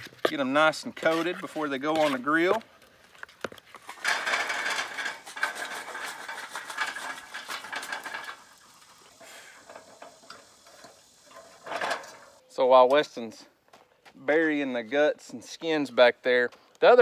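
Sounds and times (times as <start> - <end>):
charcoal briquettes clattering: 3.3 - 12.4
wire grate clinking: 3.8 - 12.4.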